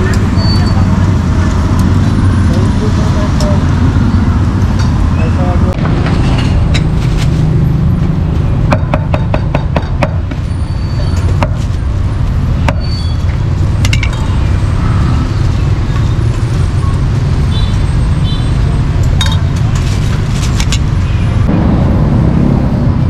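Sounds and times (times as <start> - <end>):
steady low rumble: 21.5 - 23.0.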